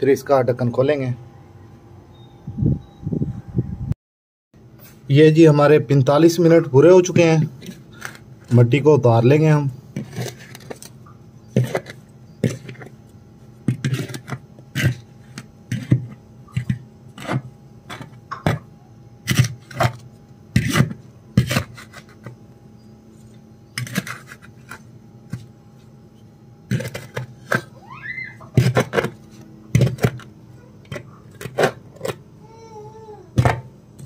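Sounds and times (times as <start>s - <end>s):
blade scraping metal lid: 10.0s - 10.9s, 11.5s - 13.0s, 13.7s - 18.6s, 19.3s - 22.3s, 23.7s - 25.5s, 26.7s - 27.7s.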